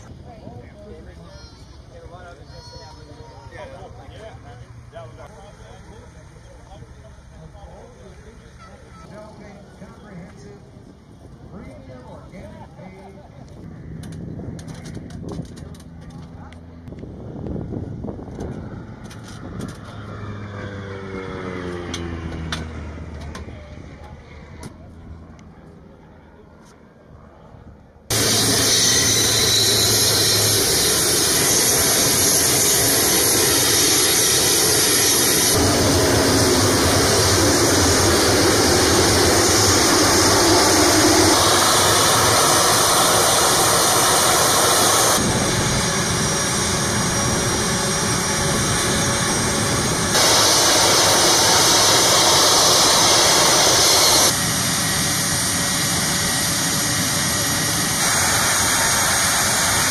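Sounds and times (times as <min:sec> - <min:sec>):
jet engines rushing and whining: 0:13.0 - 0:26.3, 0:28.0 - 0:59.9.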